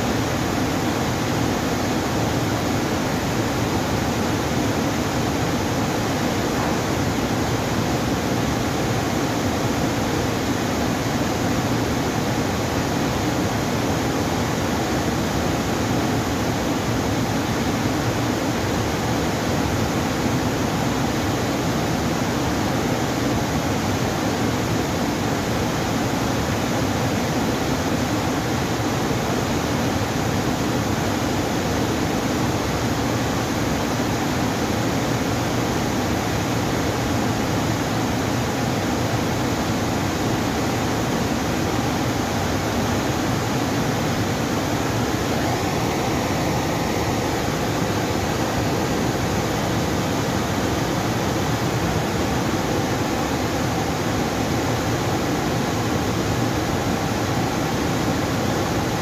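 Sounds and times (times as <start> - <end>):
water rushing: 31.1 - 59.0.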